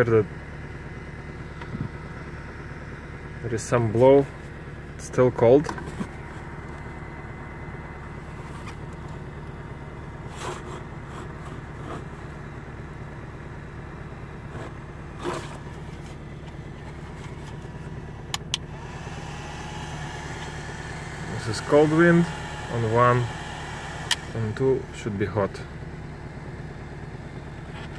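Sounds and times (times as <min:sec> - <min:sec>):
car engine idling: 0:00.0 - 0:27.9
heater fan whirring: 0:03.4 - 0:27.9.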